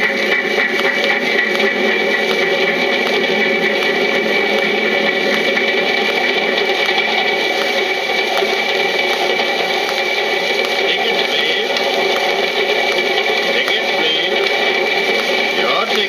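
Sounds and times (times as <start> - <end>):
mechanical running sound with tones: 0.0 - 16.0
record surface hiss and crackle: 0.0 - 16.0.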